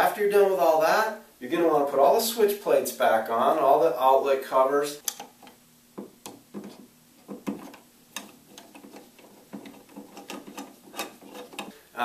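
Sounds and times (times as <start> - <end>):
screwdriver clicking on screws: 6.2 - 11.7.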